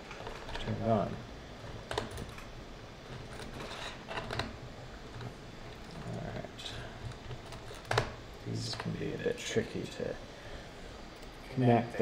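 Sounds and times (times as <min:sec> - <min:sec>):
metal connector clicking and scraping: 0:03.1 - 0:04.6.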